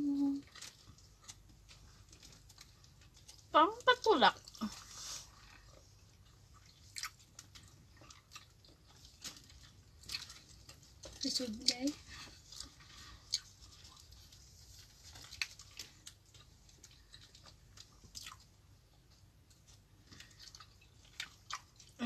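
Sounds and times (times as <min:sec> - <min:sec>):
person chewing food: 0:00.4 - 0:03.5, 0:04.3 - 0:22.0.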